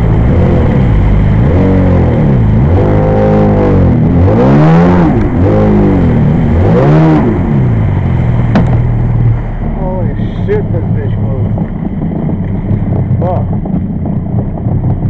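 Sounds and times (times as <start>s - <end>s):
two-stroke engine revving: 0.0s - 8.8s.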